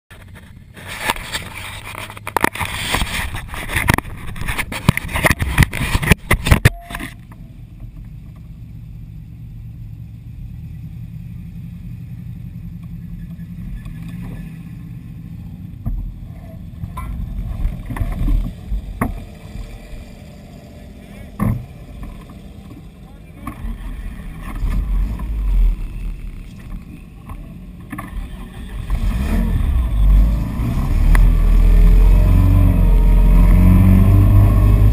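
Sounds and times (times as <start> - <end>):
camera handling rubbing and clicking: 0.2 - 7.2
truck engine idling: 7.2 - 28.9.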